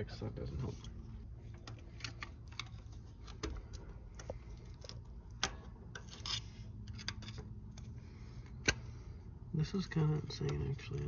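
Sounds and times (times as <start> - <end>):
metal picks scraping and clicking: 4.2 - 7.9.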